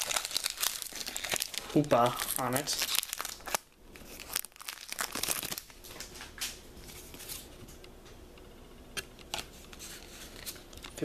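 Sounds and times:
foil wrapper crinkling and tearing: 0.0 - 6.1.

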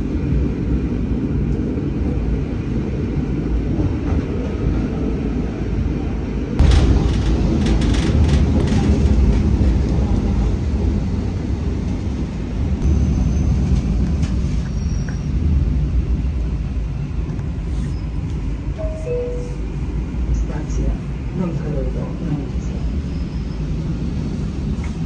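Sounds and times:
train wheels rumbling on rail: 0.0 - 25.0
train wheels clattering: 6.6 - 10.8.

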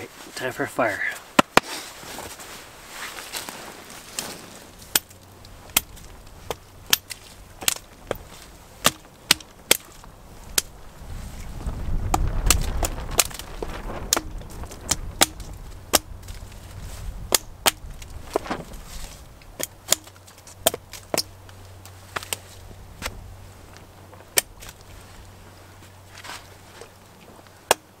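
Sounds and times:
hatchet chopping wood: 1.4 - 1.7, 4.9 - 5.1, 5.7 - 8.2, 8.8 - 10.0, 12.1 - 13.4, 14.1 - 16.4, 17.3 - 17.9, 19.6 - 21.3, 27.7 - 27.9.

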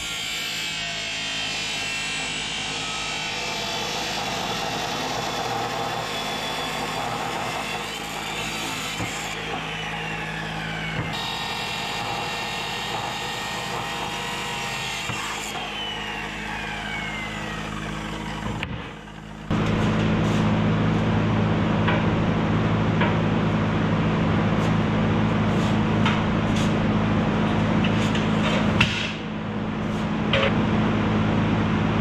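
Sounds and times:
chop saw cutting steel: 0.0 - 20.0.

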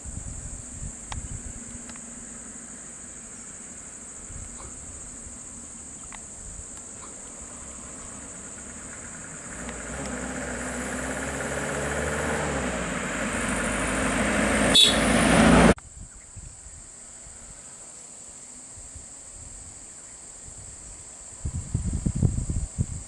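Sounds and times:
van engine driving past: 6.9 - 15.8.

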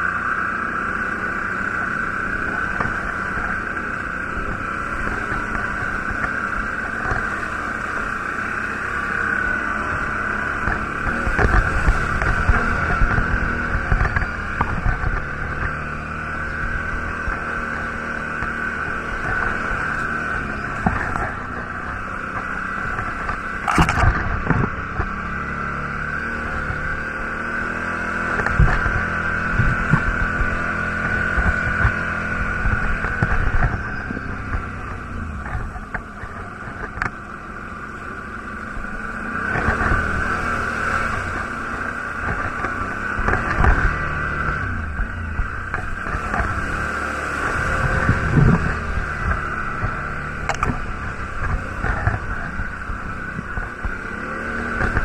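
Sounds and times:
quad bike engine: 0.0 - 55.0
bike knocking and rattling: 10.4 - 25.3, 27.7 - 37.6, 47.5 - 55.0.

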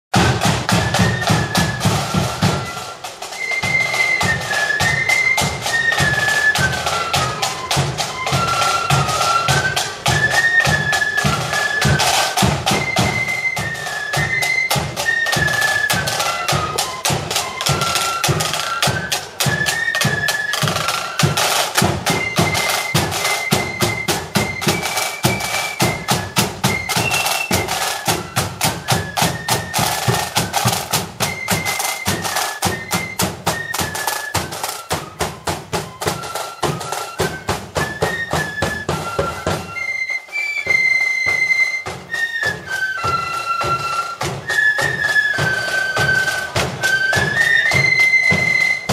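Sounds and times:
marching drum beat: 0.1 - 48.9
flutes playing in unison: 0.2 - 48.9.

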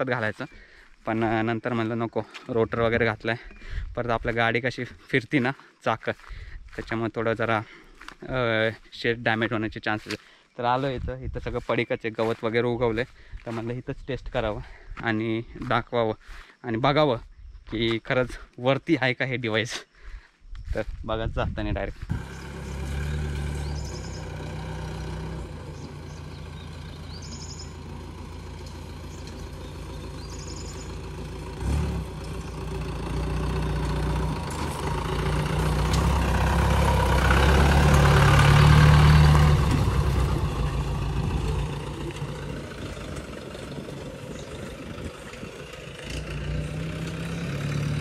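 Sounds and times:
jeep engine running: 22.0 - 48.0.

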